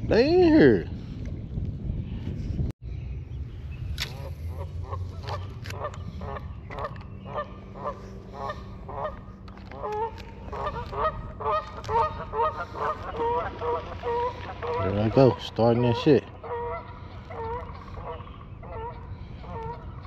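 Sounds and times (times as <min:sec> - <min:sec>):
geese honking: 0:04.1 - 0:20.0.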